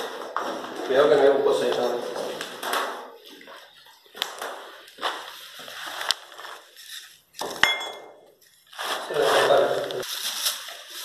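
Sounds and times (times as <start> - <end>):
footsteps crunching on rubble: 0.0 - 7.7
sharp ringing clink: 7.6 - 8.3.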